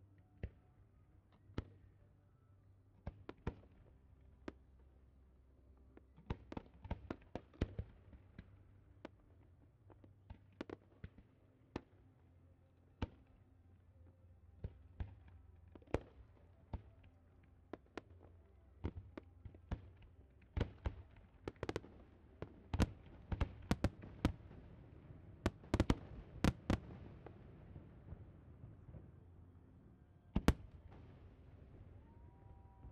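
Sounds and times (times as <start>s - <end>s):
fireworks bangs and cracks: 20.6s - 24.5s, 25.4s - 28.3s.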